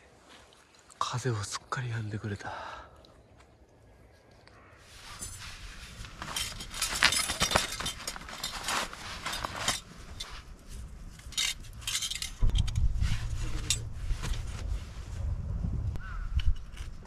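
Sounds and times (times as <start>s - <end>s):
small hard objects clinking: 6.2s - 10.3s, 11.2s - 12.9s
low rumble: 11.6s - 17.0s.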